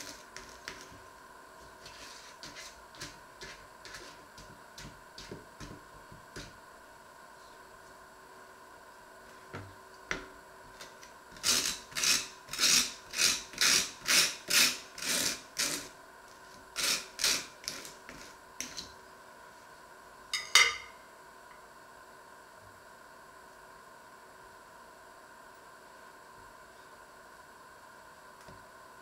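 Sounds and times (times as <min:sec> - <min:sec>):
knife scraping butter on toast: 0:01.8 - 0:04.2, 0:11.4 - 0:15.9, 0:16.8 - 0:18.8.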